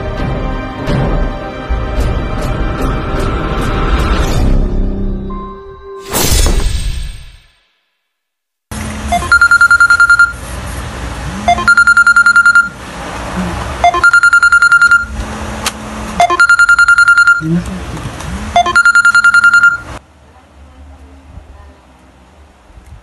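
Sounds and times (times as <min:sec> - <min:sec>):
phone alarm rapid high beeps: 0:09.1 - 0:10.4, 0:11.5 - 0:12.8, 0:13.8 - 0:15.1, 0:16.2 - 0:17.5, 0:18.6 - 0:20.0.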